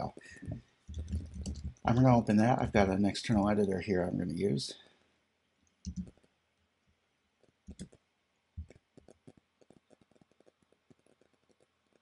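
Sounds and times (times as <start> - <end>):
computer keyboard clicking: 5.8 - 6.2, 7.7 - 8.0.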